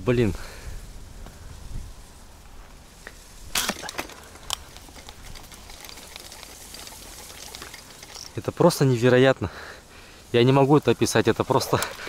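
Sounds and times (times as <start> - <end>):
faint background hiss: 0.0 - 12.0
sharp cracks: 3.5 - 8.5.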